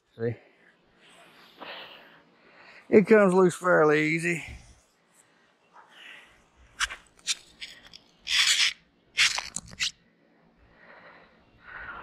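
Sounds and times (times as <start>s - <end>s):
rope clicks: 6.8s - 9.9s
rope scraping rasps: 6.8s - 9.9s.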